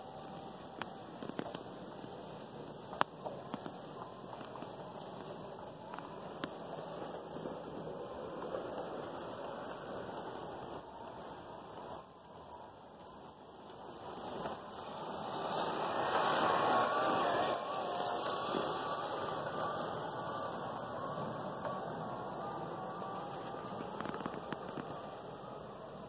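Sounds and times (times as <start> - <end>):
toy locomotive whine: 0.0 - 26.0
toy train wheels rattling on rails: 0.0 - 26.0.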